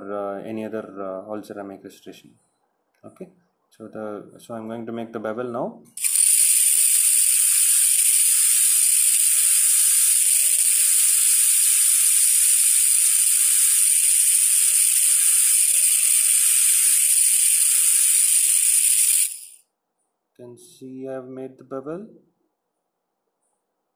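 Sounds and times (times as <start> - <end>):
dental drill whining: 6.0 - 19.6.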